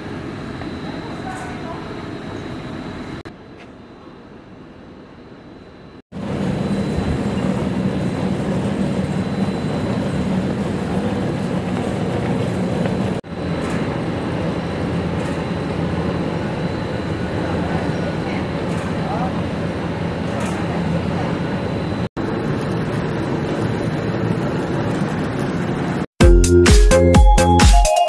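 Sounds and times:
low hum: 5.7s - 26.1s
production line machinery din: 6.1s - 26.6s.

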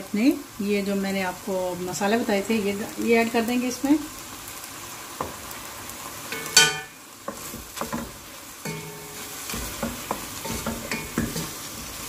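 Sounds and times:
chicken sizzling in oil: 0.0s - 12.0s
spatula scraping wok: 6.2s - 12.0s.

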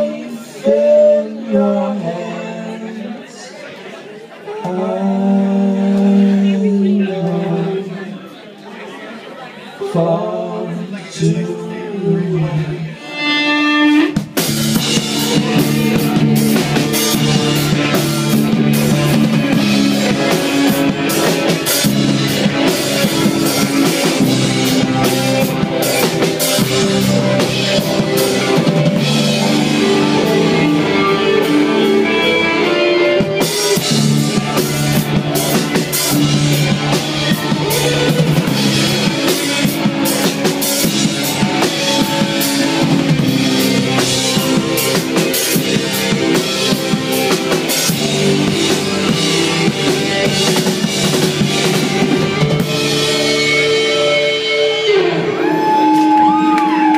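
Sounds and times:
electric guitars through amplifiers: 12.1s - 56.9s
drum kit: 13.2s - 56.9s.

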